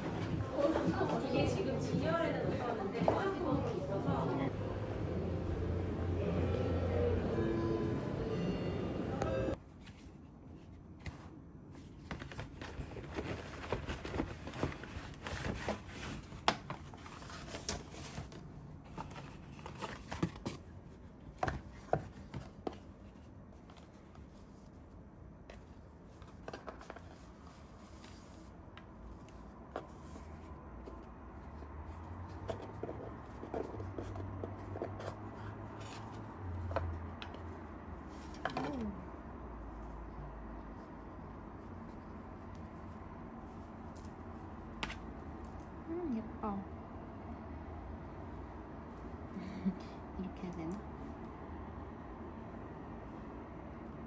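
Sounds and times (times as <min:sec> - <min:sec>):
low steady hum: 0:00.0 - 0:34.7
paper packaging rustling: 0:09.6 - 0:24.9.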